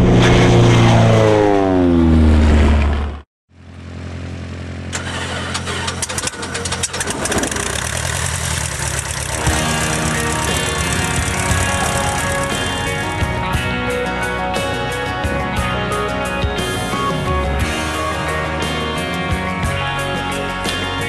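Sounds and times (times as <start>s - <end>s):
propeller engine starting up: 0.0s - 13.3s
rapid propeller clicks: 5.8s - 13.0s.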